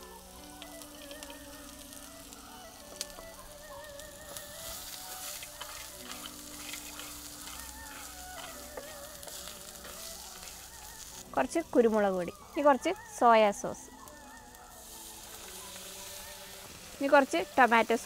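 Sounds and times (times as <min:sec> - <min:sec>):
chicken sizzling in oil: 0:00.0 - 0:18.0
wooden spatula stirring: 0:03.9 - 0:11.3.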